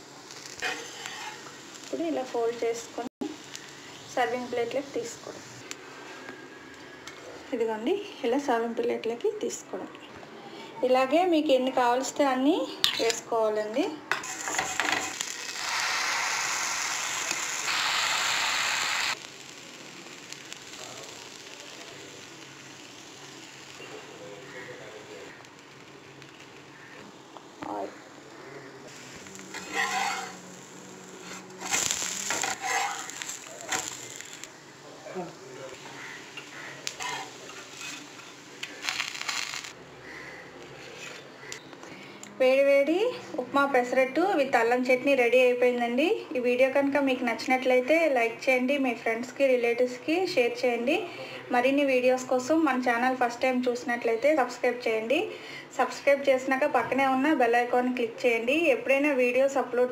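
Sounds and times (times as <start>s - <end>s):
oil sizzling on a hot griddle: 0.0s - 6.0s, 14.1s - 40.7s
faint steady hiss: 0.0s - 59.9s
metal spatula scraping a pan: 0.6s - 1.6s, 28.9s - 30.5s, 31.1s - 34.4s, 35.8s - 39.6s.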